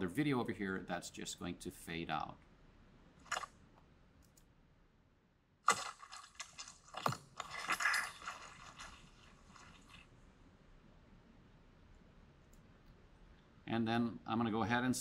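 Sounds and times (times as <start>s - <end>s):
crunchy squelchy hits: 5.6s - 9.7s.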